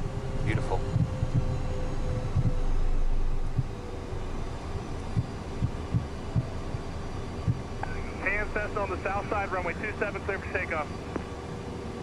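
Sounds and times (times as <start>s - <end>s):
jet engines idling hum: 0.0s - 12.0s.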